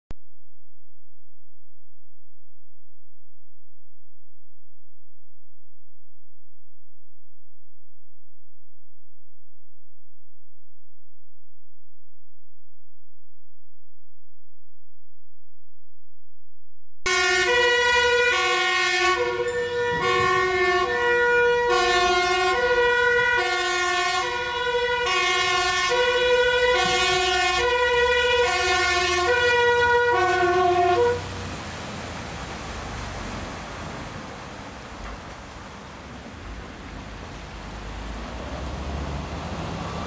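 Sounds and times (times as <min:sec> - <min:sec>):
two-tone fire engine siren: 0:17.1 - 0:31.3.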